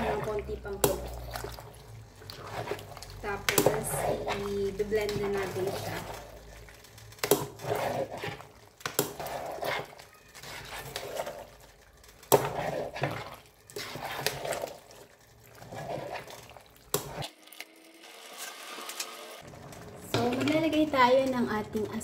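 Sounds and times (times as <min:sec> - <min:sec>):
spoon stirring thick sauce: 0:00.0 - 0:17.2.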